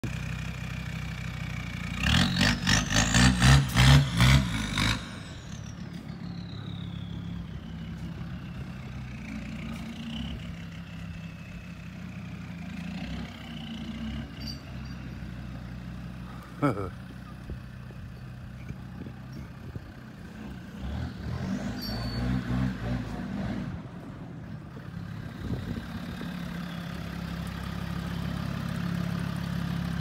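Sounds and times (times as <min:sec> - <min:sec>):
diesel engine revving: 0:00.0 - 0:30.0.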